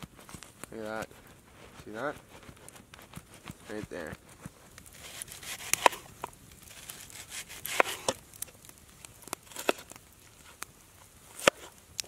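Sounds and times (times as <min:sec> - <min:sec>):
campfire crackling and popping: 0:00.0 - 0:12.0
knife slicing onion: 0:05.0 - 0:06.0, 0:06.8 - 0:08.2.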